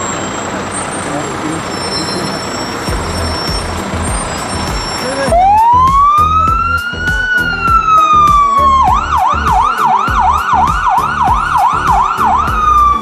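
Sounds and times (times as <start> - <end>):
fire truck siren wailing and yelping: 0.0 - 13.0.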